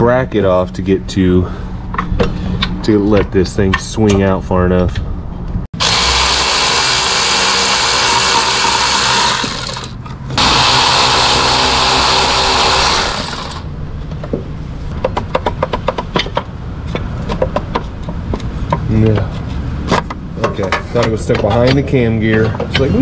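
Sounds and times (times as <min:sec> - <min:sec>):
power tool running: 0:05.8 - 0:13.7.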